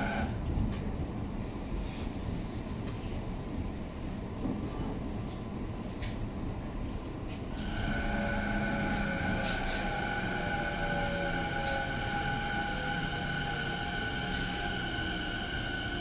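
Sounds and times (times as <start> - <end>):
train wheels rumbling on rail: 0.0 - 16.0
high-pitched train motor whine: 7.6 - 16.0.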